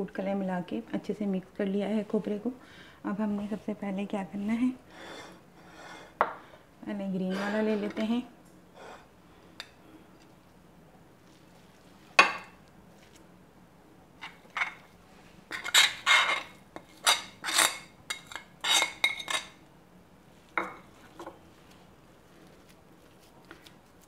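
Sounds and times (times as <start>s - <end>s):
metal spoon scraping ceramic plate: 5.0s - 6.2s, 15.5s - 19.5s.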